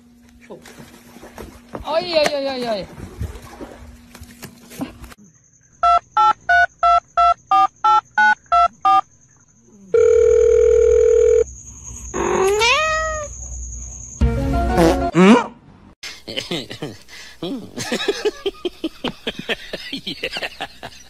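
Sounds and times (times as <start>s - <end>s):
steady telephone tone: 9.9s - 11.5s
cat meowing: 12.4s - 13.3s.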